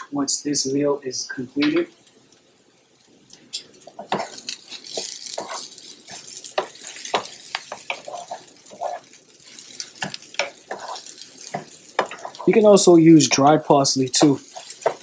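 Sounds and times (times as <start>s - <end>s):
light sizzle: 0.0s - 15.0s
spoon scraping rice in a pan: 3.6s - 12.7s, 14.2s - 15.0s.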